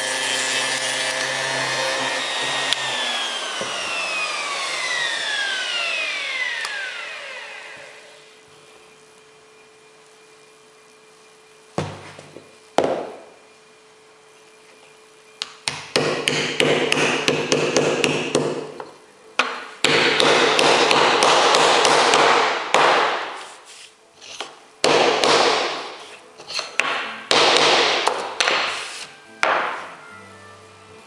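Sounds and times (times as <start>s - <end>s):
wooden block knocking: 29.4s - 29.9s.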